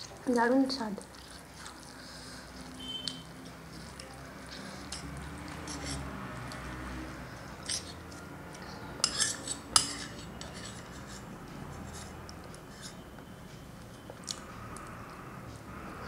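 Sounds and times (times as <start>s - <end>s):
metal spoon clinking on bowl: 9.0s - 10.8s.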